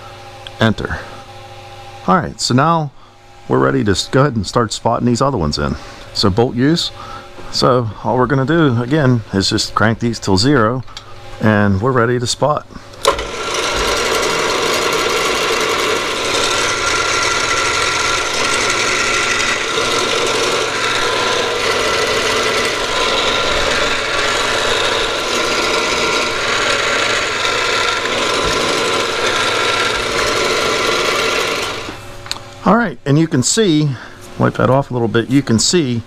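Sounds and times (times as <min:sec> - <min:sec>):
spindle whine: 0:00.0 - 0:36.0
drill cutting steel: 0:13.0 - 0:32.0
milling machine running: 0:13.0 - 0:32.2.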